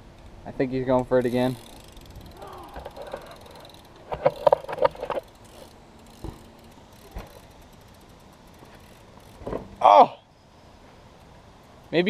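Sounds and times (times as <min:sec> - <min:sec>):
bike rattling clicks: 0:00.0 - 0:09.8.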